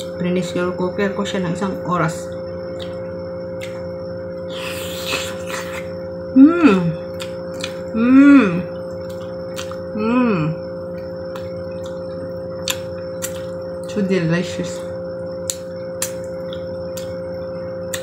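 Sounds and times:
steady hum: 0.0s - 18.0s
person humming mmm: 4.5s - 8.8s, 9.9s - 10.6s.

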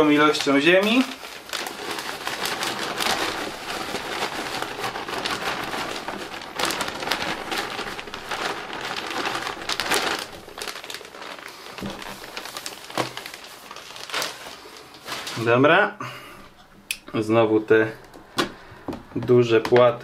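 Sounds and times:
soil sprinkled by hand crackling: 0.0s - 15.6s.

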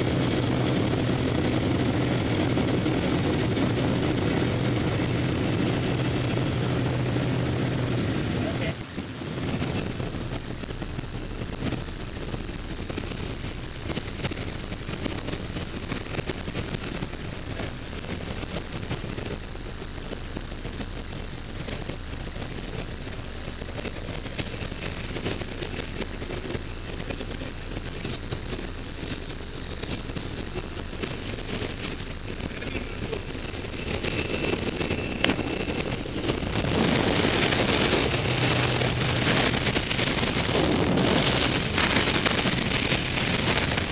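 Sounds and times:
plane engine and propeller drone: 0.0s - 43.9s
wind rushing: 27.7s - 43.9s.

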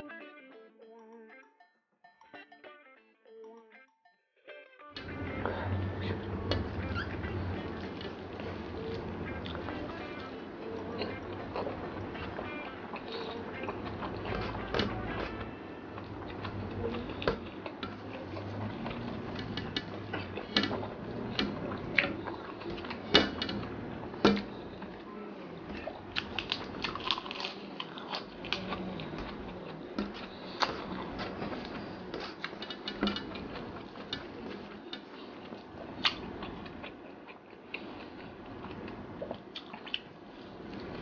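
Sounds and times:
person chewing with wet smacking: 7.6s - 25.0s, 25.8s - 41.0s.

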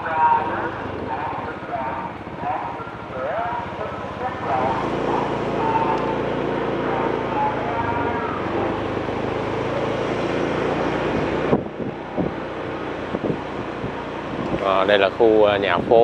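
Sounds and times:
vehicle engine running: 0.0s - 16.0s
wind noise on microphone: 0.1s - 3.8s, 9.6s - 16.0s.

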